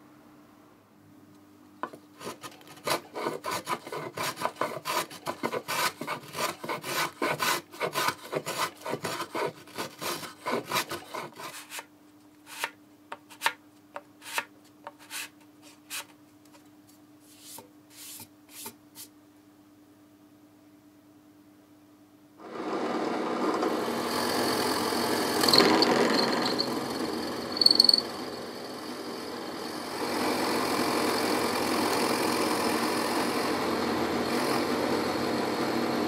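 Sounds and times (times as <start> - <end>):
sanding block scraping wood: 2.2 - 11.9, 12.5 - 12.7, 14.2 - 16.1, 17.3 - 19.1.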